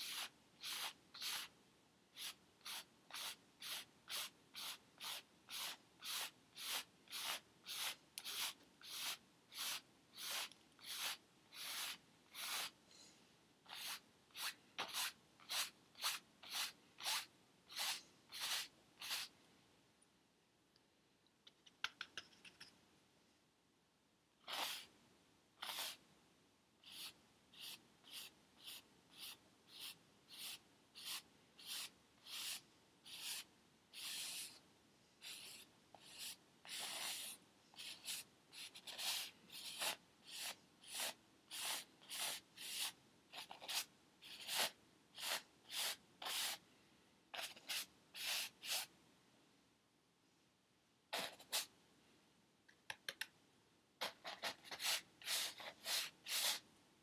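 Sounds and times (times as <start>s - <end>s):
paintbrush scrubbing on canvas: 0.0s - 1.5s, 2.2s - 12.8s, 13.7s - 19.3s, 24.4s - 24.9s, 25.6s - 26.0s, 26.8s - 34.6s, 35.2s - 46.6s, 47.3s - 48.9s, 54.0s - 56.6s.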